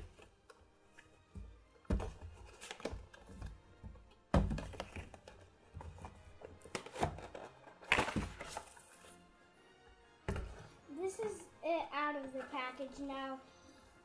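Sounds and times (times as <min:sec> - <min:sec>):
faint background music: 0:00.0 - 0:14.0
knocks and thumps on cardboard box: 0:01.4 - 0:05.3.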